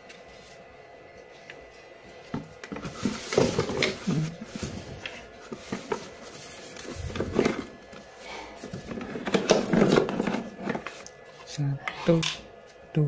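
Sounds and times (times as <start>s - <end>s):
cardboard rustling: 2.7s - 11.0s
hard plastic parts clattering: 8.7s - 11.0s.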